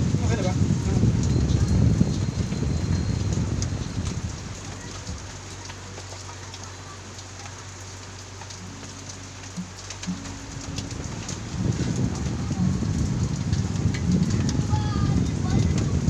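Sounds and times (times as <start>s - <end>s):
steady rain falling: 0.0s - 16.0s
faint drips: 0.2s - 16.0s
low steady hum: 7.2s - 16.0s.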